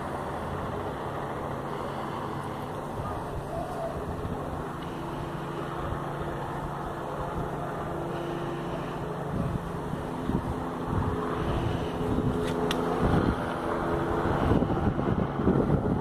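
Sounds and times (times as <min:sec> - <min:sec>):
helicopter rotor and engine drone: 0:00.0 - 0:16.0
wind noise on microphone: 0:02.9 - 0:07.6, 0:08.6 - 0:16.0.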